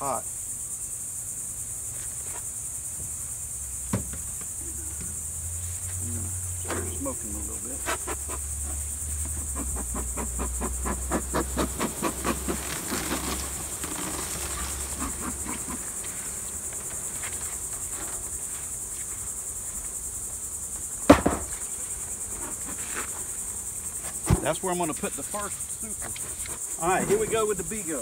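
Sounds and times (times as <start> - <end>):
insects droning: 0.0 - 28.0
bellows puffing: 4.5 - 19.6
sharp knock: 21.1 - 21.6.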